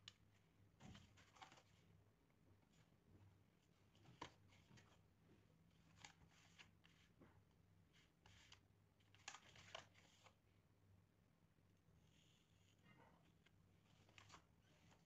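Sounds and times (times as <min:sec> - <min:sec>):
plastic sheet clicks and rustles: 0:08.3 - 0:10.3.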